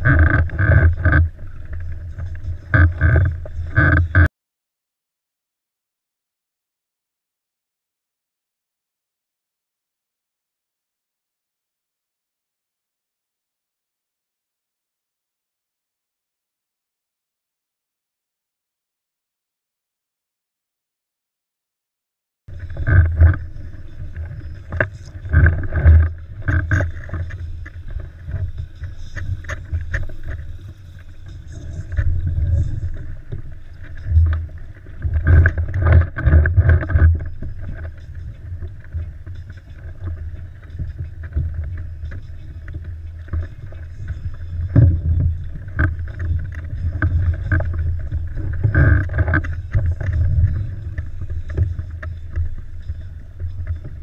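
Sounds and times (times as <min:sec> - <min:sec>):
water lapping against kayak hull: 0:00.0 - 0:04.3, 0:22.5 - 0:54.0.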